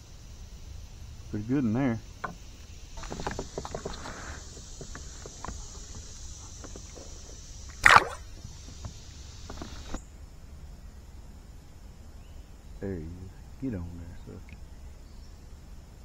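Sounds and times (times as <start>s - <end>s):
small clicks and rustles: 2.2s - 7.5s, 8.4s - 10.0s
fish splashing into water: 5.2s - 8.6s.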